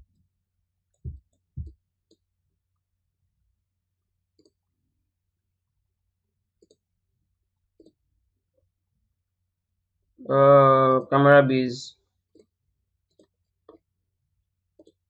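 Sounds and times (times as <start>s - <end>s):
computer mouse clicking: 6.6s - 6.8s, 14.8s - 15.0s.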